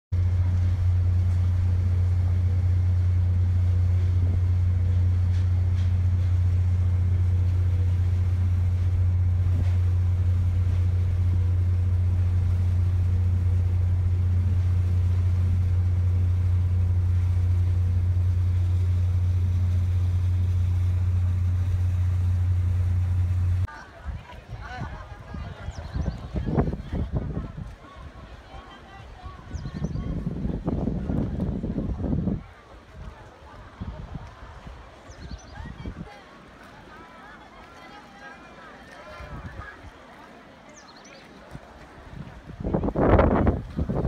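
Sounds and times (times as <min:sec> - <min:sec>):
ferry engines droning: 0:00.1 - 0:44.0.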